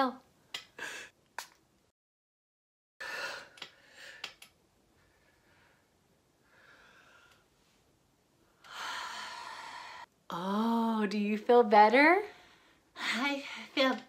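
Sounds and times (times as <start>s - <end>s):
woman breathing deeply: 3.0s - 10.1s.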